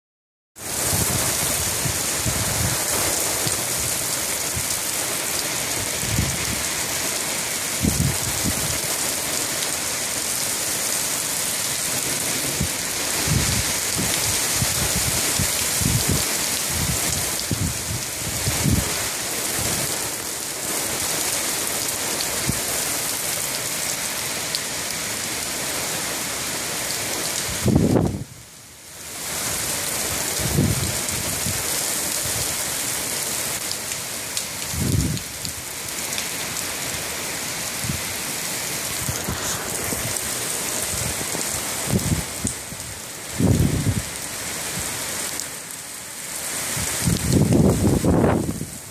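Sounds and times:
wind gusts rumbling: 0.6s - 4.9s, 5.7s - 7.0s, 7.7s - 9.8s, 11.9s - 20.0s, 30.2s - 32.5s, 34.6s - 35.5s, 37.8s - 44.2s, 46.7s - 48.9s
heavy rain pouring: 0.6s - 48.9s.

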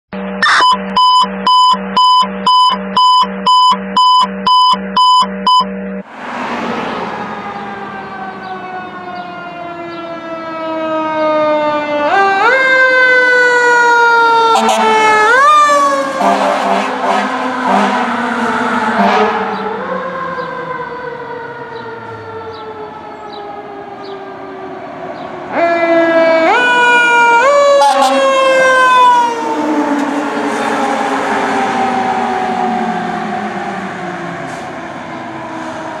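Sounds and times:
fire engine siren wailing: 0.4s - 4.2s, 5.5s - 36.0s
pulsing tone: 0.4s - 4.2s.

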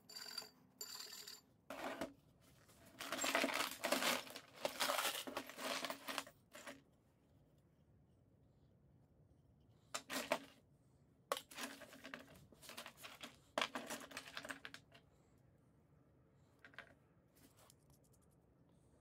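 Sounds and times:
metal fittings clinking on wood: 3.0s - 6.7s.

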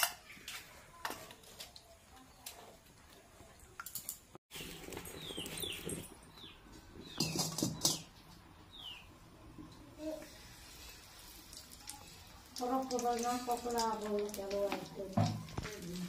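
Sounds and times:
metal pot clanking and scraping: 7.0s - 8.1s.

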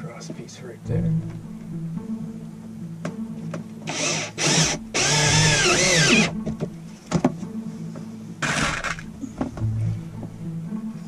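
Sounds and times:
cordless drill driving screws: 3.9s - 6.3s, 8.4s - 9.0s.

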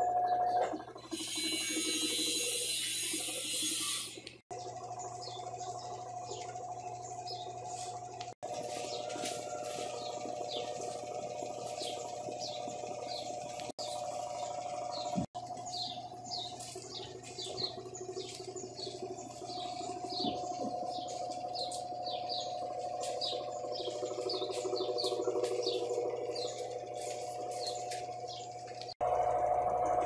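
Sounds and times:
birds chirping: 0.0s - 29.1s
washing machine spin motor hum: 0.0s - 30.0s.

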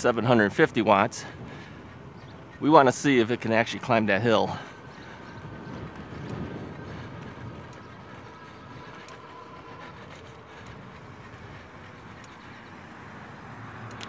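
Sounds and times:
tyres rolling on pavement: 0.0s - 14.0s
sharp clicks: 13.8s - 14.0s.

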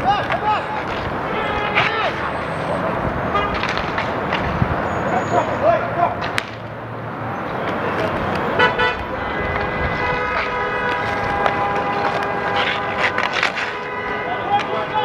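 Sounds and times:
steady traffic: 0.0s - 15.0s
vehicle horn blast: 1.2s - 2.0s, 3.3s - 3.6s, 8.6s - 15.0s
sharp clacks: 6.2s - 6.7s.

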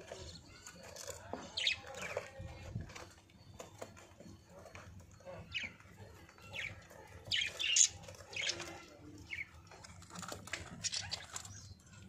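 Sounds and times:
budgerigars chirping: 4.2s - 9.9s, 10.5s - 11.9s.

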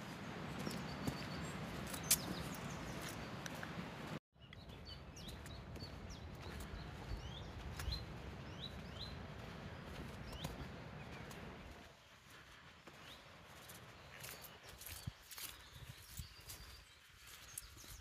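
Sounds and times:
birds chirping: 0.0s - 18.0s
footsteps on wet gravel: 0.0s - 18.0s.

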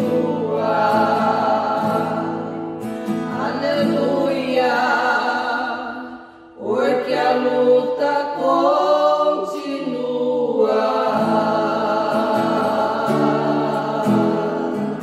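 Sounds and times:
strummed acoustic guitar: 0.0s - 6.4s, 10.6s - 15.0s
women singing a hymn in harmony: 0.0s - 15.0s.

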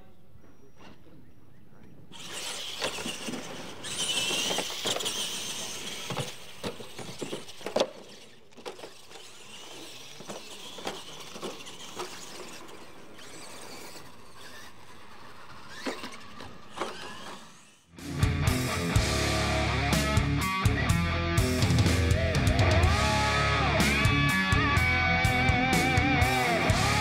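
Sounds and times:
electric motors whining: 1.9s - 17.9s, 21.6s - 27.0s.

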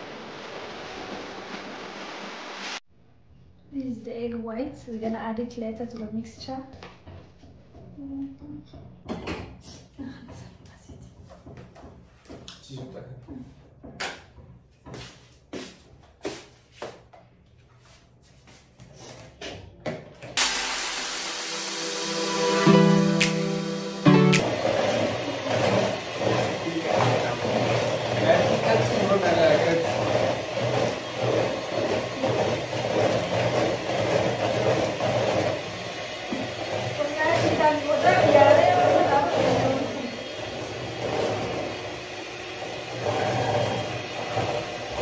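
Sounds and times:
background music: 20.4s - 25.4s
electric hand mixer running: 20.4s - 45.0s.

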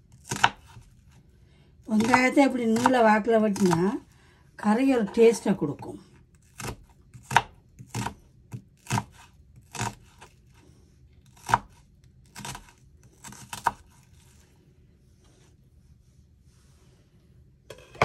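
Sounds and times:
knife slicing onion on board: 0.0s - 1.1s, 2.0s - 4.0s, 6.4s - 10.6s, 11.2s - 14.4s.

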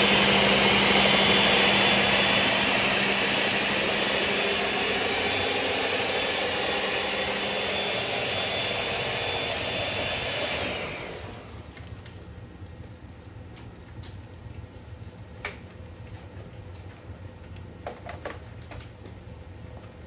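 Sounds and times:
blender running: 0.0s - 11.9s.

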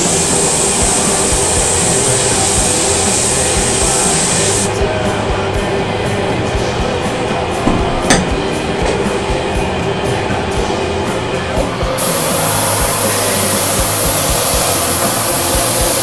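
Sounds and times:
spray gun hissing: 0.0s - 4.8s, 11.9s - 16.0s
music with steady beat: 0.0s - 16.0s.

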